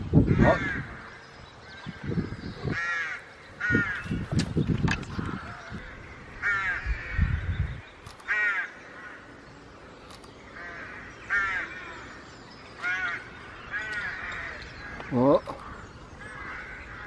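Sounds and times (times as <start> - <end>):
crow cawing: 0.3 - 1.3, 2.0 - 4.2, 5.1 - 7.4, 8.2 - 9.4, 10.6 - 17.0.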